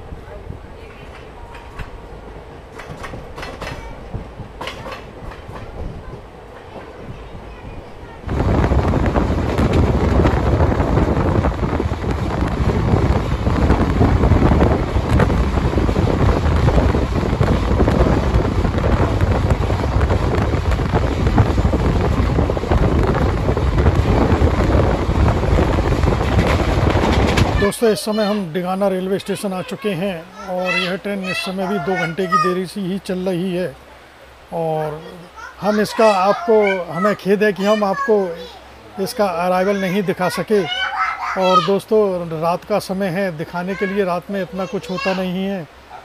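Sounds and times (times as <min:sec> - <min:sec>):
train wheels clattering: 0:00.9 - 0:07.3, 0:08.4 - 0:27.7.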